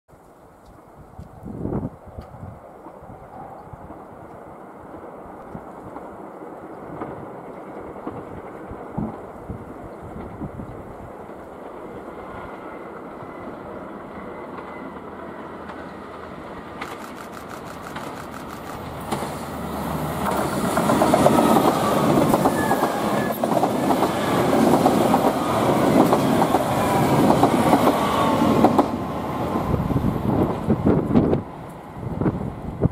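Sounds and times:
diesel train engines running: 0:06.2 - 0:32.9
train wheels clattering over rail joints: 0:16.7 - 0:19.5.

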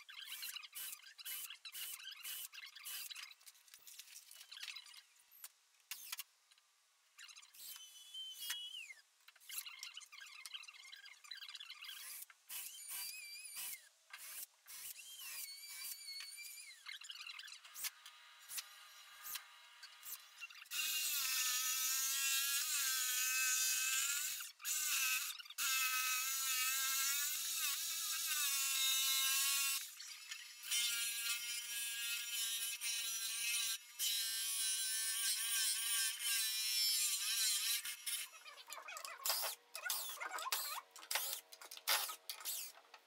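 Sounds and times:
power tool whining: 0:39.2 - 0:42.9.

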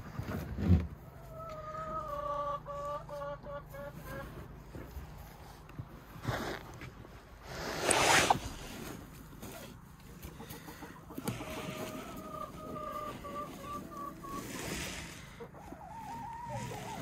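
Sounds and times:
chicken clucking: 0:01.0 - 0:05.7, 0:09.2 - 0:17.0.

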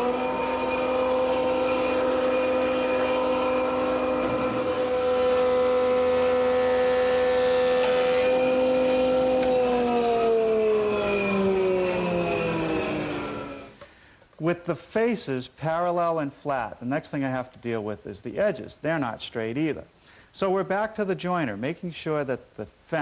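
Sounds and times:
board being planed: 0:00.0 - 0:13.6
planer motor whining: 0:00.0 - 0:13.8.

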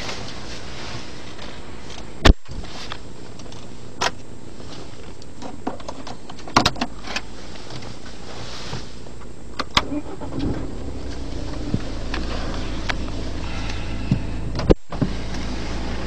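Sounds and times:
car cabin low hum: 0:06.9 - 0:16.0.

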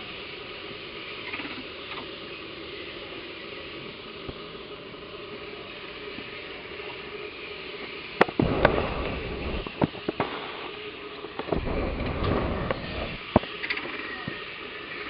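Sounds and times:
background hiss: 0:00.0 - 0:15.0
low rumbling: 0:08.4 - 0:10.3, 0:11.4 - 0:13.4.

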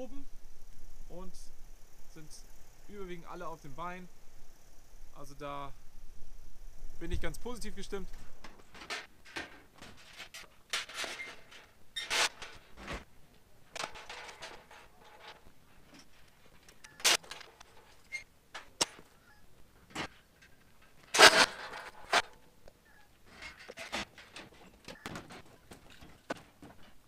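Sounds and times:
metal hurdles clanking: 0:08.4 - 0:13.0, 0:13.7 - 0:27.0.

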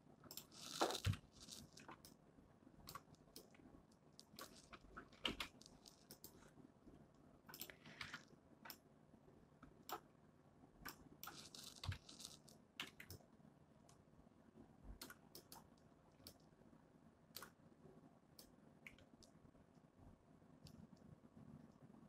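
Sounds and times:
keyboard and mouse clicks: 0:00.3 - 0:02.2, 0:02.8 - 0:03.6, 0:04.2 - 0:06.4, 0:07.5 - 0:08.8, 0:10.8 - 0:13.2, 0:14.9 - 0:16.4.

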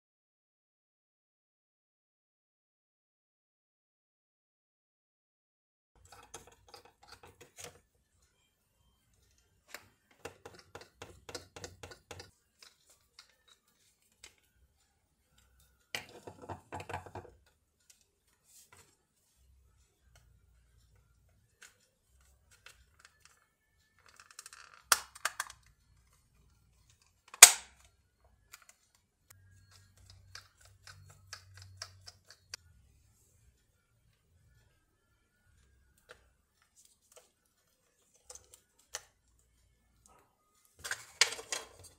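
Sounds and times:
screwdriver and plastic parts ticking: 0:06.0 - 0:07.9, 0:09.2 - 0:14.5, 0:20.9 - 0:32.6, 0:35.9 - 0:39.5.

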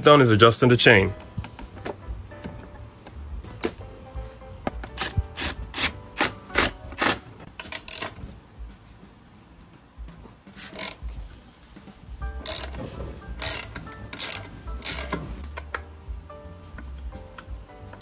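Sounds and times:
ratchet wrench clicking: 0:05.0 - 0:08.2, 0:10.7 - 0:11.1, 0:12.4 - 0:12.8, 0:13.4 - 0:15.2.

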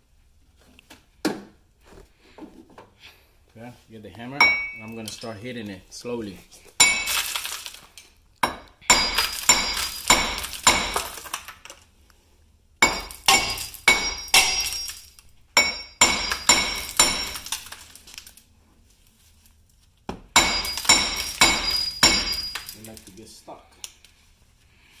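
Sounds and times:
hammer striking metal: 0:04.4 - 0:04.8, 0:08.4 - 0:11.1, 0:12.8 - 0:15.0, 0:15.6 - 0:17.6, 0:20.4 - 0:22.8.

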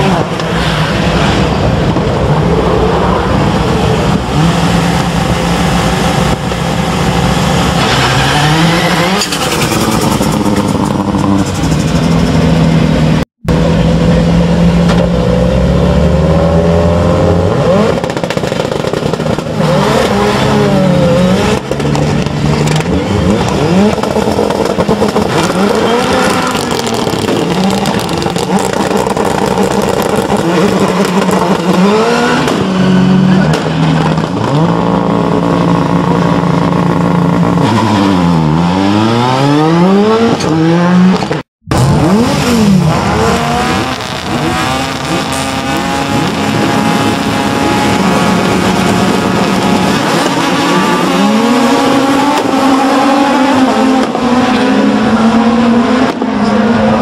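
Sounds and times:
race car engines revving: 0:00.0 - 0:57.0.

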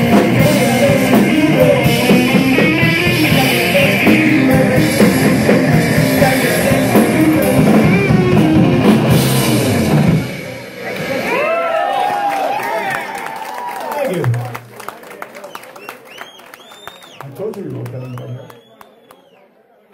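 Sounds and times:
distorted electric guitar: 0:00.0 - 0:11.5
drum kit with crashing cymbals: 0:00.0 - 0:11.5.

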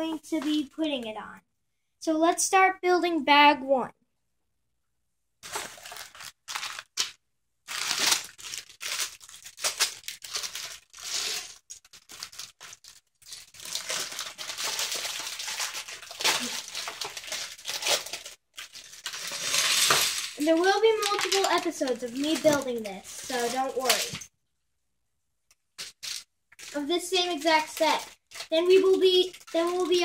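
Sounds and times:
plastic bags crinkling: 0:05.4 - 0:24.2, 0:25.8 - 0:30.0.

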